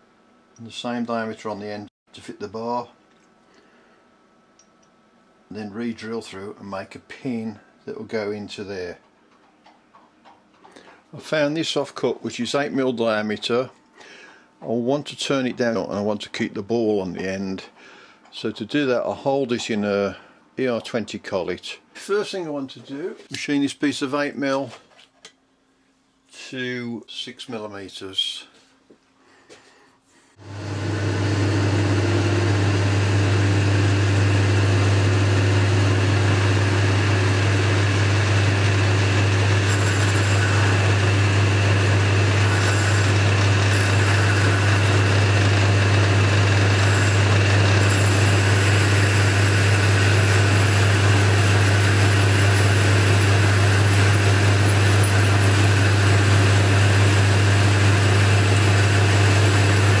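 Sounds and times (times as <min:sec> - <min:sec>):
lathe running with low hum: 0:30.4 - 1:00.0.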